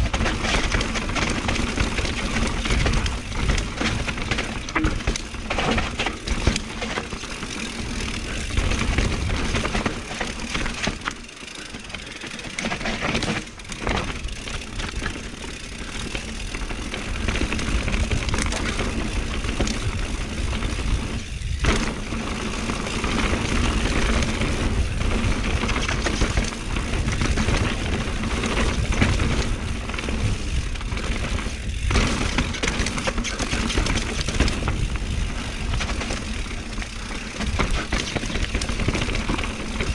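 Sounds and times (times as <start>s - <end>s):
bike knocking and rattling: 0.0s - 39.9s
bike tyre noise on dirt: 0.0s - 39.9s
wind rumble on microphone: 17.0s - 39.9s.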